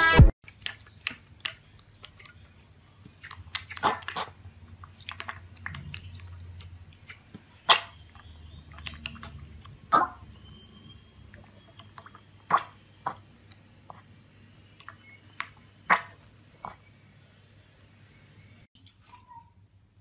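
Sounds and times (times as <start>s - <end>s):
piglet slurping milk: 0.5s - 10.0s, 11.3s - 14.2s.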